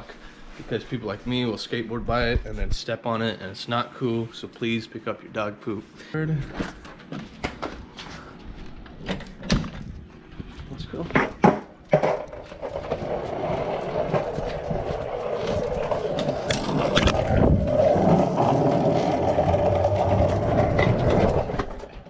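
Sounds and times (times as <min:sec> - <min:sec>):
skateboard wheels rolling on concrete: 0:07.5 - 0:22.0.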